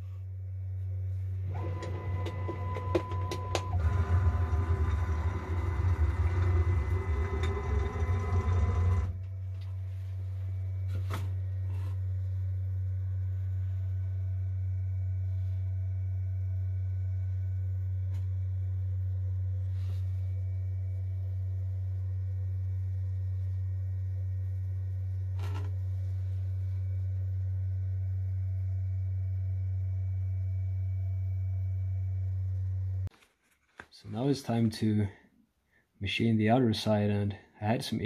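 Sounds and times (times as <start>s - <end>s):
steady low hum: 0.0s - 33.1s
router cutting steel with whine: 3.8s - 9.1s.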